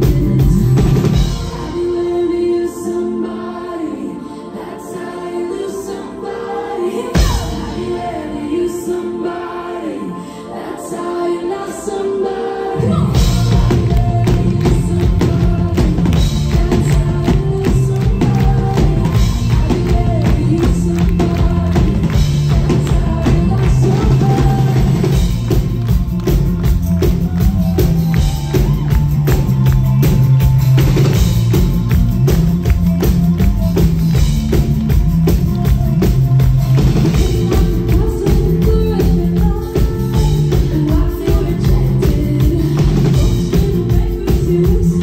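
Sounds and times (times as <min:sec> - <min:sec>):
live pop-rock band: 0:00.0 - 0:05.1, 0:06.6 - 0:45.0
woman singing lead vocal: 0:00.0 - 0:25.4, 0:37.1 - 0:45.0
audience clapping along: 0:13.2 - 0:38.6.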